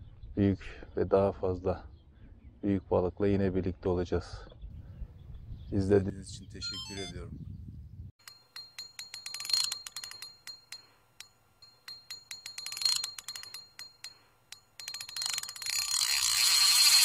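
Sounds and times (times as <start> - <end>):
rapid mechanical clicking: 8.2 - 17.0.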